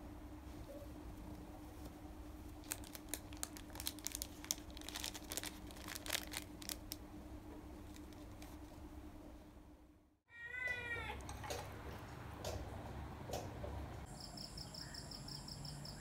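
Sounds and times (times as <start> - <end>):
plastic packets crinkling: 2.6 - 7.0, 7.8 - 8.6.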